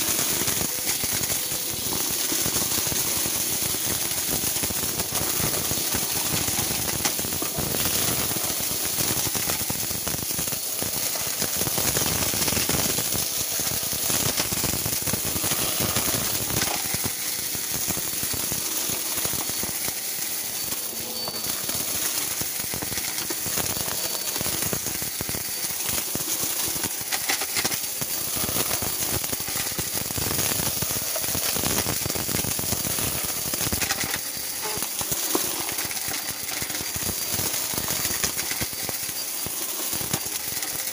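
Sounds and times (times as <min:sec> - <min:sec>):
debris rattling into vacuum: 0:00.0 - 0:40.9
vacuum cleaner running: 0:00.0 - 0:40.9.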